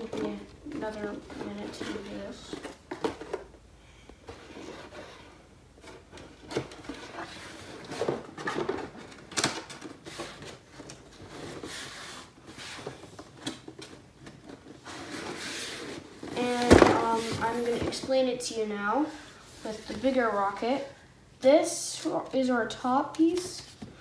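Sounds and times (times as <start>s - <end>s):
cardboard box handled and folded: 0.0s - 3.5s, 10.0s - 18.2s.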